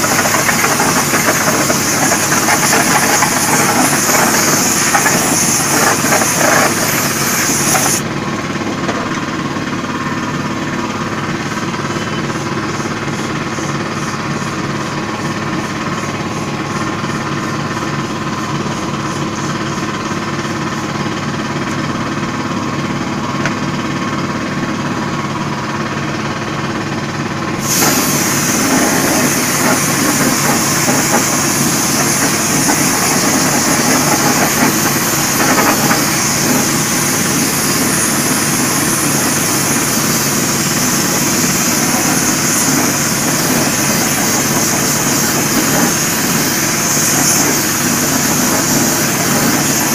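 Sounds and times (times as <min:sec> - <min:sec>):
pressurized spray hissing: 0:00.0 - 0:08.0, 0:27.6 - 0:49.9
compressor motor droning: 0:00.0 - 0:49.9.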